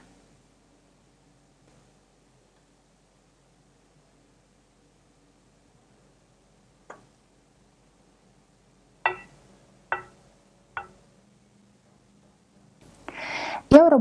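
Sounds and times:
spatula clinking on ceramic bowl: 9.1s - 10.2s.

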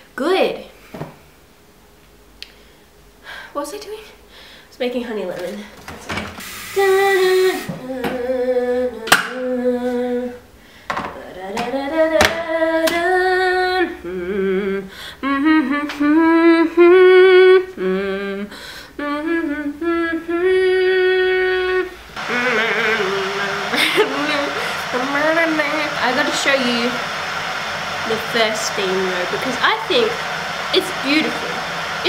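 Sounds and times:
woman singing slow melody: 6.8s - 10.5s, 11.1s - 27.0s.

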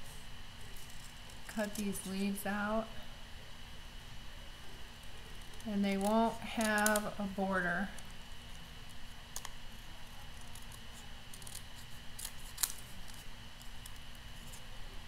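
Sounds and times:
scissors snipping cardstock: 10.4s - 14.6s.

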